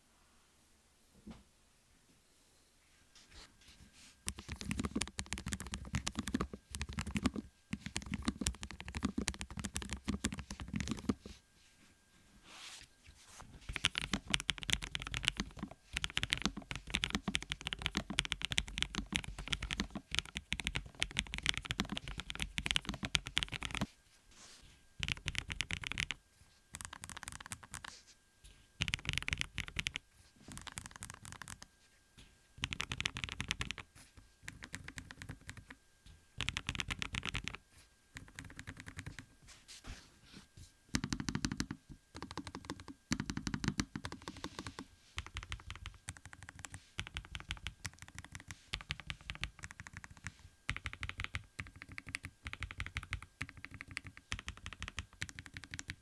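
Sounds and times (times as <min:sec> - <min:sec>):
mechanical keyboard typing: 0:04.3 - 0:11.2, 0:13.7 - 0:23.9, 0:25.0 - 0:27.9, 0:28.8 - 0:31.7, 0:32.6 - 0:33.9, 0:34.5 - 0:35.8, 0:36.4 - 0:37.6, 0:38.2 - 0:39.2, 0:41.0 - 0:56.0.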